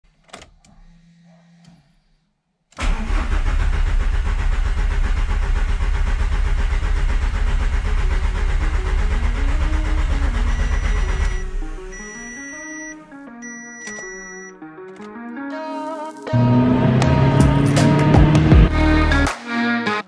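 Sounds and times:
diesel engine running: 2.8s - 12.9s, 16.3s - 19.2s.

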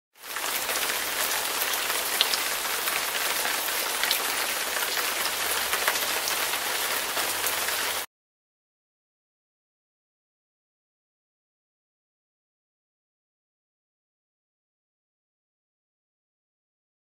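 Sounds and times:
heavy rain hiss: 0.2s - 8.1s
raindrop ticks: 0.3s - 6.6s.

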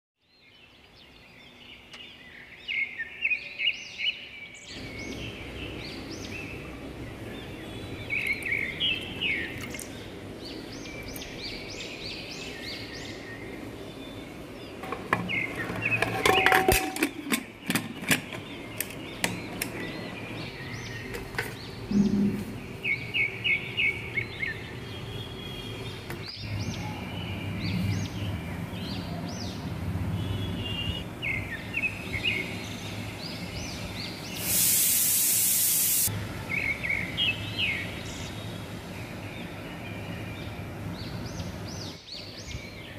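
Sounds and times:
small birds chirping: 0.2s - 16.5s, 17.1s - 42.9s
steady background hiss: 31.0s - 42.9s.

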